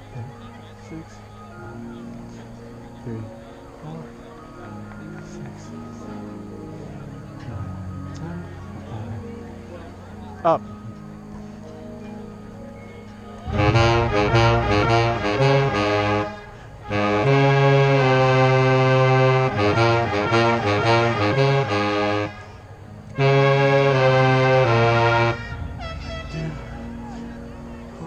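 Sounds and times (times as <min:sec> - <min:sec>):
marching band winds and brass: 0:13.4 - 0:28.0.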